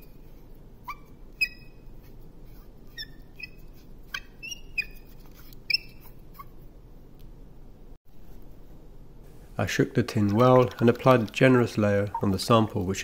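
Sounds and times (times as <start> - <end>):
faint steady hum: 0.0 - 13.0
short high squeaks: 0.8 - 6.6.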